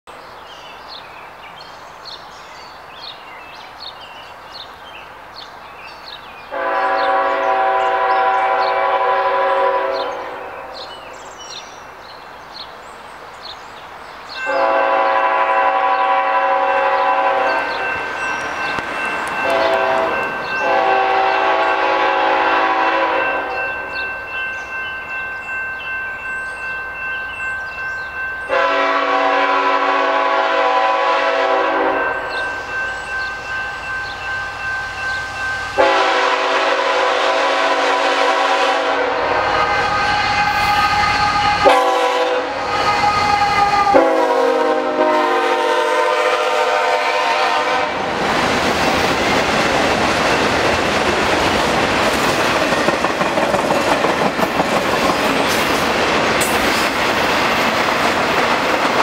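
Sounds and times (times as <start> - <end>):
birds chirping: 0.1 - 22.0, 23.4 - 28.8, 32.0 - 36.3
distant locomotive horn: 6.5 - 11.2, 14.4 - 24.1, 28.5 - 33.2, 35.0 - 48.2.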